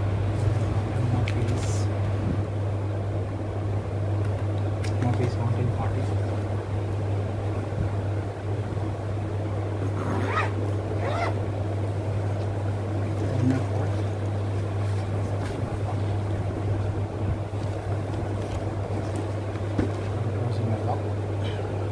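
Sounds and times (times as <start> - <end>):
bag fabric rustling: 9.8 - 11.4.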